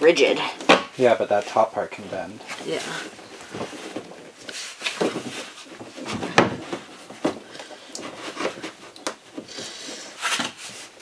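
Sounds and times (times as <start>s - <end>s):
plastic tank and hose knocking: 5.0s - 9.6s.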